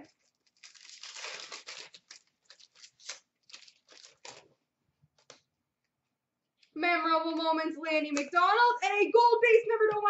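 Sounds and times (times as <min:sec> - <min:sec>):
plastic wrapper tearing and crinkling: 0:00.0 - 0:04.6.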